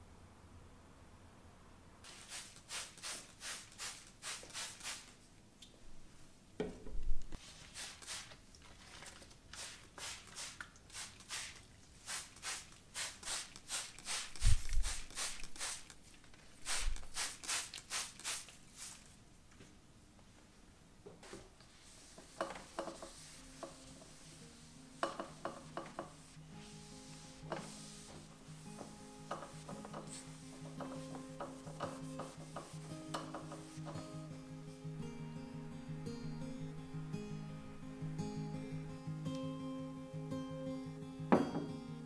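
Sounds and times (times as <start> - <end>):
spray bottle misting: 2.0 - 5.2, 7.4 - 8.4, 9.5 - 19.2, 21.2 - 34.1.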